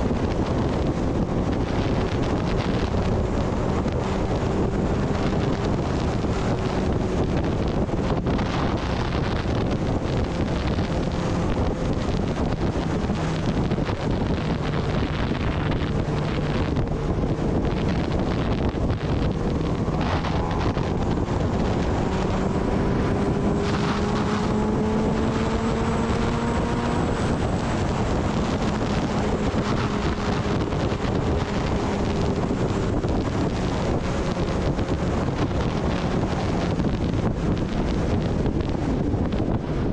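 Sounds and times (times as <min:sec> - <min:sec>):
motorcycle engine running: 0:00.0 - 0:39.9
wind buffeting microphone: 0:00.0 - 0:39.9.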